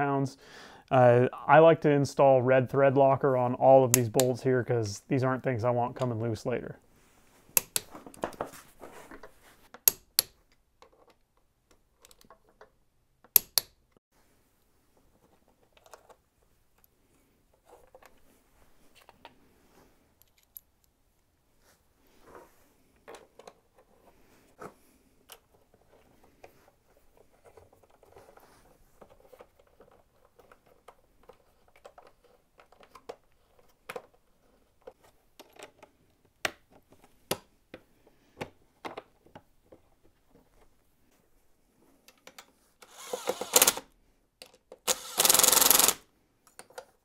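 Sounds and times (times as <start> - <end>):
rustling of parts handled: 6.9 - 9.8, 14.9 - 20.9, 21.6 - 37.2
small parts clicking: 42.1 - 46.9.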